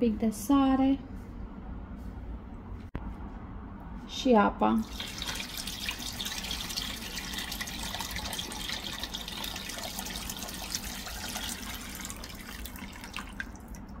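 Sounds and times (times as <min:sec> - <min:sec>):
water pouring into a pot: 0:04.8 - 0:14.0.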